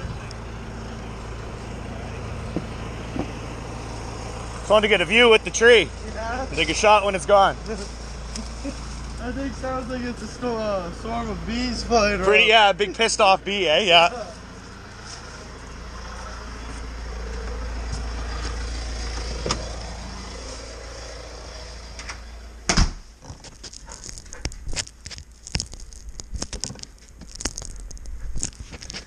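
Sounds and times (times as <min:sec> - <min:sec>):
steady noisy rumble: 0:00.0 - 0:29.0.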